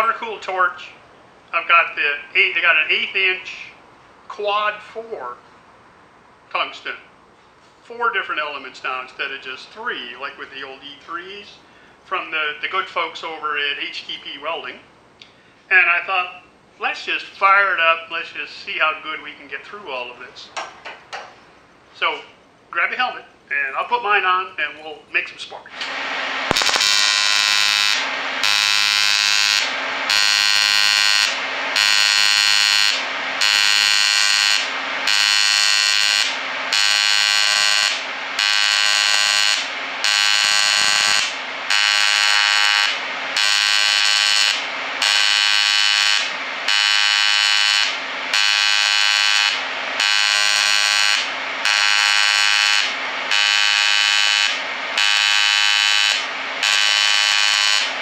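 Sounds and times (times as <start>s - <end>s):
welding arc buzzing: 25.8s - 57.9s.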